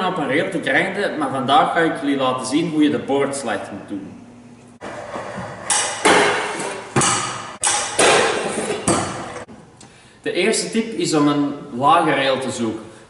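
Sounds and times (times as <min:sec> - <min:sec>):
scooter scraping along rail: 0:04.8 - 0:07.0
scooter deck clanking on metal rail: 0:04.9 - 0:09.5.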